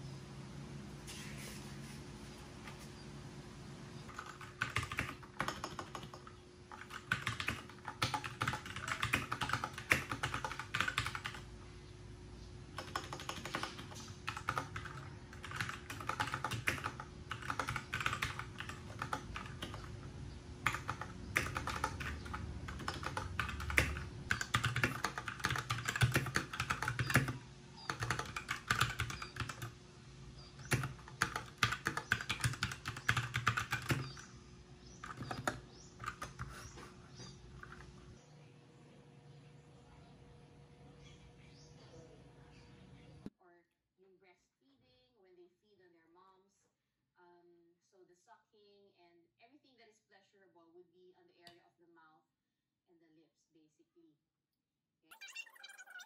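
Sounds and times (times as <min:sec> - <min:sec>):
mechanical keyboard typing: 0:04.1 - 0:11.5, 0:12.7 - 0:29.8, 0:30.6 - 0:34.2, 0:35.0 - 0:36.6.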